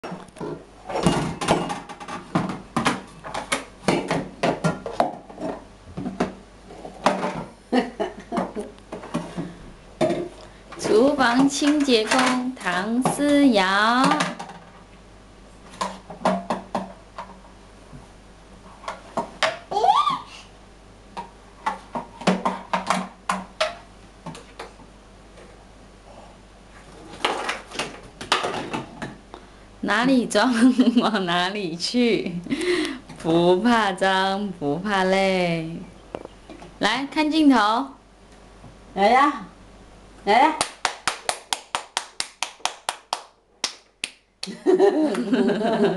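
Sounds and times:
plastic cups knocking in metal sink: 0.4s - 6.4s, 14.0s - 14.7s, 15.8s - 17.4s, 27.2s - 29.2s.

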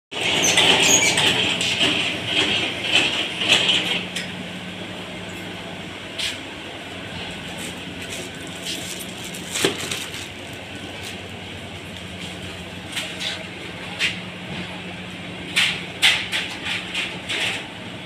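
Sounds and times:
low machinery hum: 0.1s - 18.0s.

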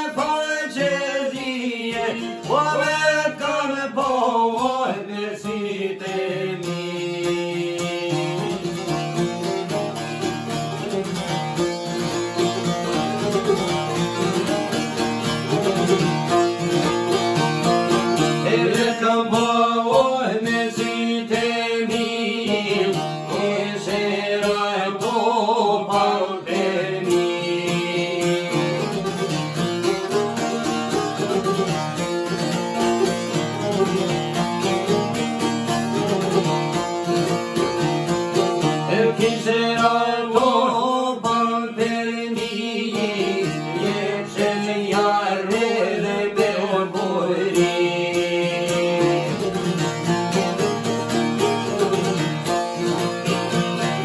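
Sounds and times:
men singing: 0.0s - 8.9s, 18.2s - 29.1s, 38.8s - 49.9s
plucked lutes strumming: 0.0s - 54.0s.

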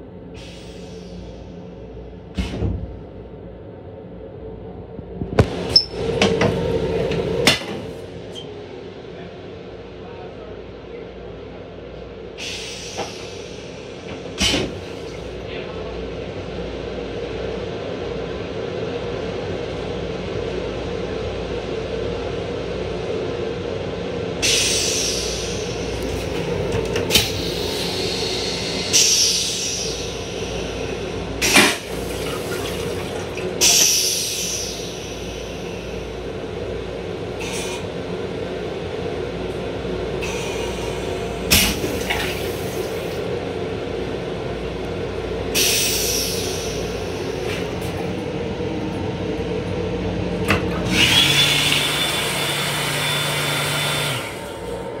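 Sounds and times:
railcar rumble and hum: 0.0s - 55.0s
toilet flushing: 25.4s - 35.9s, 40.2s - 43.3s, 50.5s - 54.8s.

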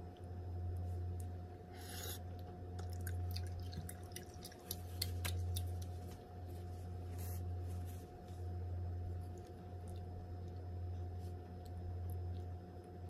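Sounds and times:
steady low hum: 0.0s - 13.0s
wet chewing mouth sounds: 2.0s - 6.1s.

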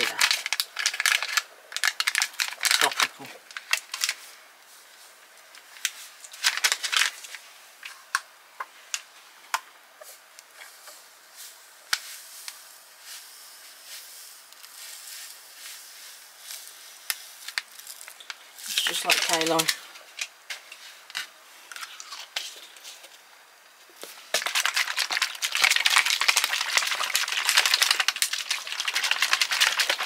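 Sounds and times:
foil pouch crinkling: 0.0s - 4.2s, 5.8s - 7.4s, 16.2s - 20.3s, 24.2s - 30.0s
soft hiss: 3.2s - 6.5s, 7.1s - 24.4s.

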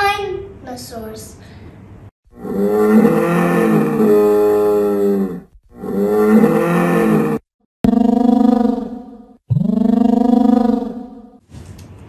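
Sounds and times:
dinosaur roar: 2.3s - 11.4s.

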